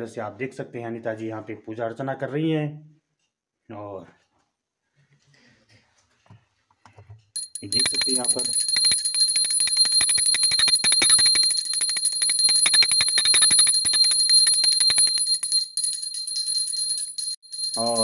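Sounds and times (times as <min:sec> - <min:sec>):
brass hand bell ringing rapidly: 0:07.4 - 0:18.0.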